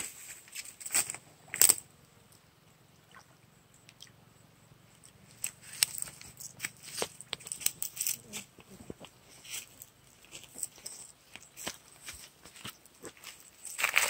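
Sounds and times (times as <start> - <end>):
hand rustling weeds in water: 5.4 - 14.0.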